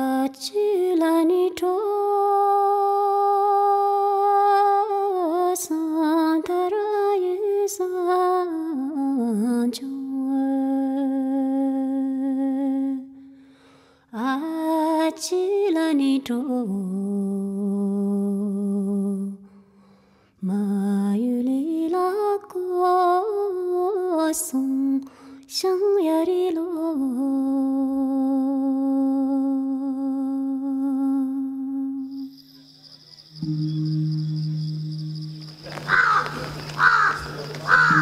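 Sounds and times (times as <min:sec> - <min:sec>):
person singing unaccompanied: 0:33.4 - 0:38.0.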